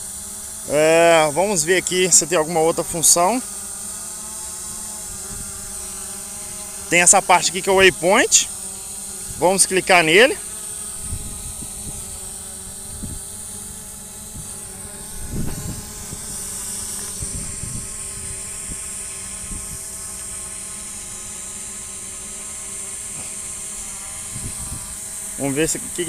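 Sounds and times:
drone propellers buzzing: 0.0 - 26.0
low thumps: 15.1 - 16.4.

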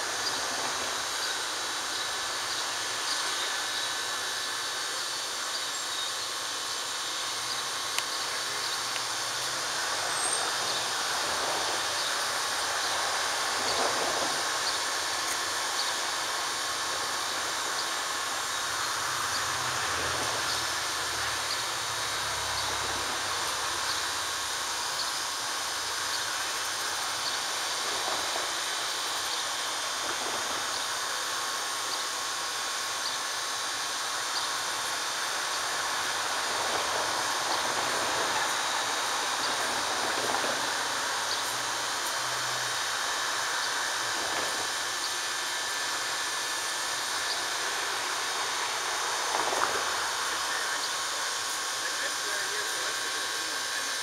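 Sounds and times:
steam locomotive hissing: 0.0 - 54.0.

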